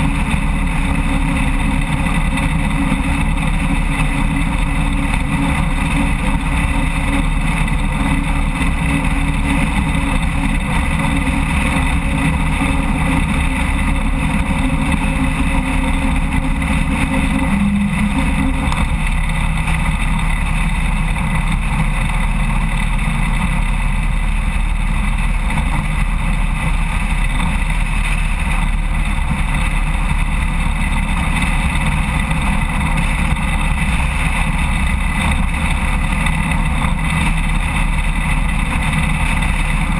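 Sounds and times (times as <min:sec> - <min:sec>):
motorcycle engine cruising: 0:00.0 - 0:39.9
wind and road noise: 0:00.0 - 0:39.9.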